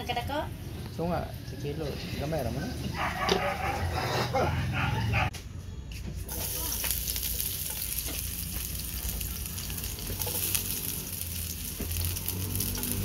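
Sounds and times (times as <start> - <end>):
garlic sizzling in hot oil: 6.3 - 13.0
oil popping: 6.3 - 13.0.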